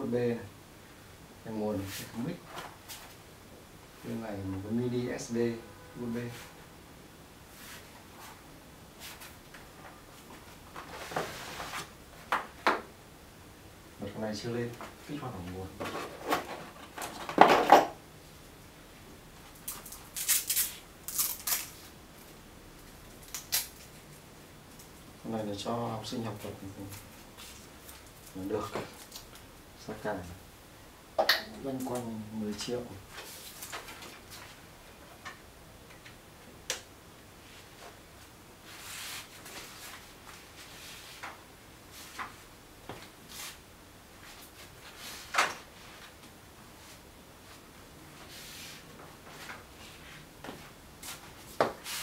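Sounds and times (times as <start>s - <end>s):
rustling scraping handling noises: 9.0s - 11.9s, 14.8s - 17.9s.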